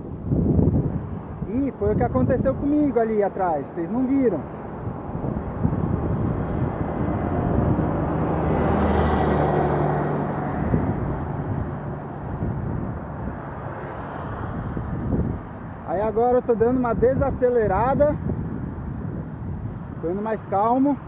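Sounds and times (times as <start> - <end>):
truck passing by: 3.4 - 16.3.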